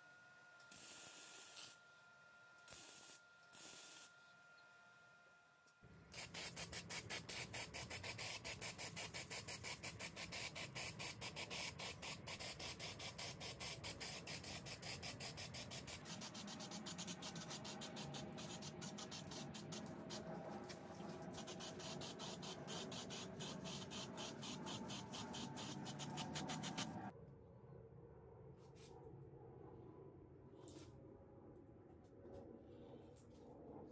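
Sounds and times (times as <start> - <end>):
spray paint can hissing: 6.1 - 27.1.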